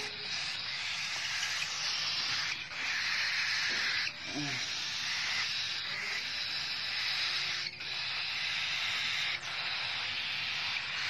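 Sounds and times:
chicks hissing begging calls: 0:00.0 - 0:11.0.

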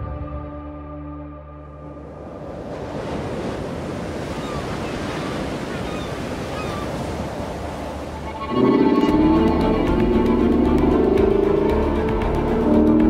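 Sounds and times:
music: 0:00.0 - 0:02.4, 0:08.2 - 0:13.0
wind: 0:01.4 - 0:13.0
ocean surf: 0:01.8 - 0:13.0.

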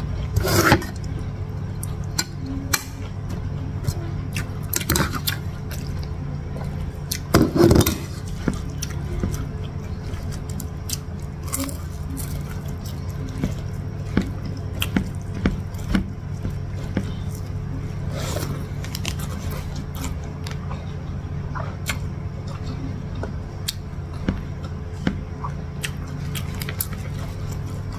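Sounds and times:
steady low hum: 0:00.0 - 0:27.9
wet chewing: 0:07.9 - 0:21.0, 0:21.6 - 0:27.9.

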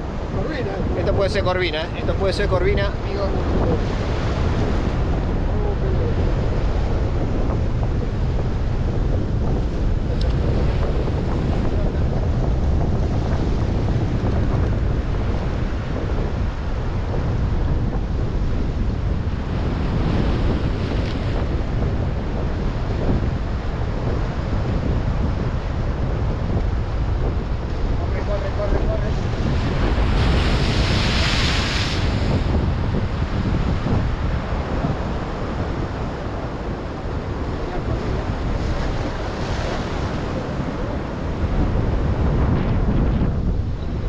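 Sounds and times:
wind buffeting microphone: 0:00.0 - 0:44.0
surf breaking against rocks: 0:27.4 - 0:43.5.

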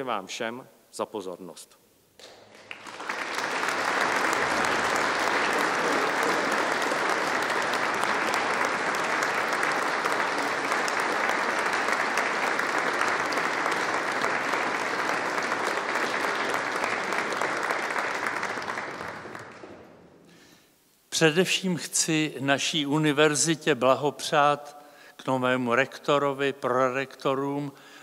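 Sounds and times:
audience applauding: 0:02.2 - 0:20.6.

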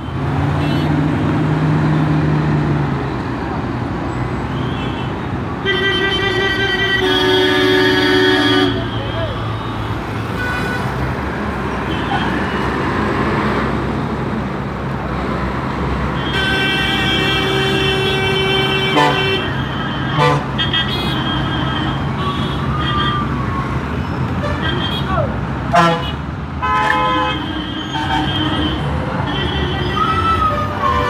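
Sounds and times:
heavy diesel engines droning: 0:00.0 - 0:31.0
road traffic: 0:00.0 - 0:31.0
vehicle horn honking: 0:04.6 - 0:09.8, 0:16.2 - 0:23.2, 0:24.4 - 0:30.1.

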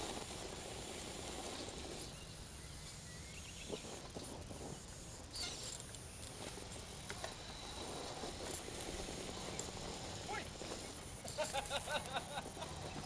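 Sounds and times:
faint outdoor background noise: 0:00.0 - 0:13.0
small clicks and scrapes: 0:02.8 - 0:13.0.

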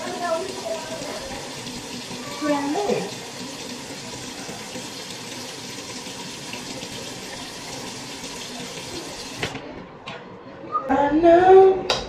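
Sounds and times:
tap running into basin: 0:00.0 - 0:09.6.

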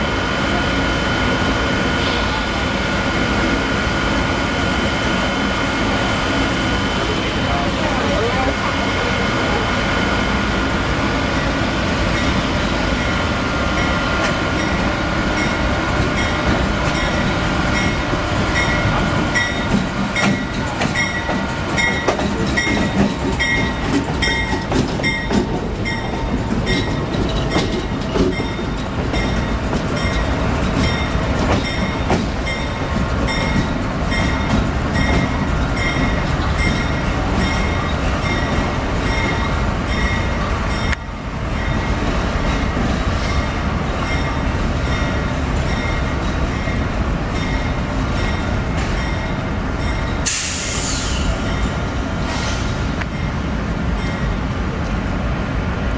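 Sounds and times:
diesel locomotive whine: 0:00.0 - 0:55.9
locomotive bell ringing: 0:12.1 - 0:50.4
wheels clicking over rail joints: 0:18.6 - 0:37.7.

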